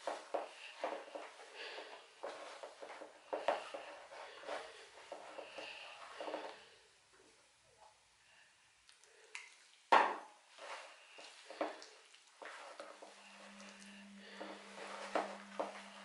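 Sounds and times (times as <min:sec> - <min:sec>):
hands kneading dough in a bowl: 0:09.2 - 0:16.0.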